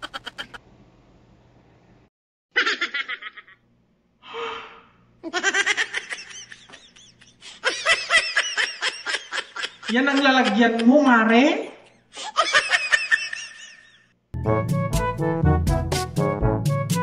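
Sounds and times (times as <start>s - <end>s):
man laughing: 0.0s - 0.6s, 5.2s - 14.0s
breathy gasp: 4.2s - 5.0s.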